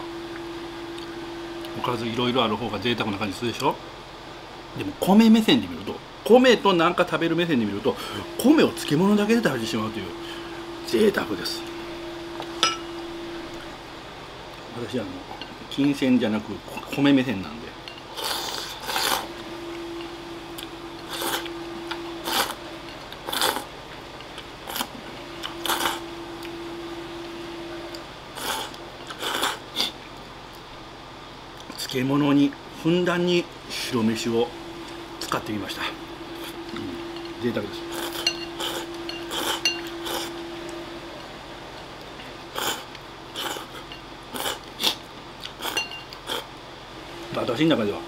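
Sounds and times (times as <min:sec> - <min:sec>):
faint steady hum: 0:00.0 - 0:48.0
person slurping food: 0:18.2 - 0:19.3, 0:21.1 - 0:21.5, 0:23.3 - 0:23.6, 0:28.4 - 0:30.0, 0:42.6 - 0:43.8, 0:44.4 - 0:45.0.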